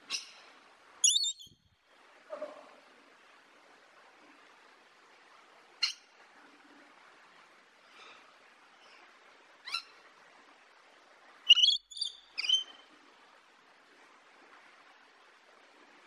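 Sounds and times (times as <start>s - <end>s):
faint steady hiss: 0.0s - 16.0s
lorikeet calling: 1.0s - 1.6s, 11.5s - 12.8s.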